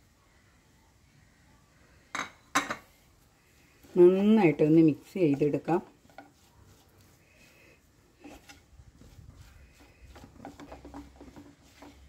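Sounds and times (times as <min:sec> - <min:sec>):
spatula scraping a frying pan: 0:04.0 - 0:12.0.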